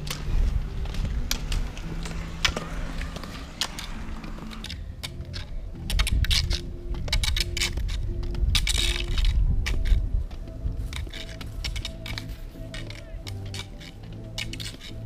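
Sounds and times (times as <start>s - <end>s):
pole tips clicking on asphalt: 0.0s - 15.0s
wheels rolling on road: 0.0s - 15.0s
wind on microphone: 5.6s - 12.6s.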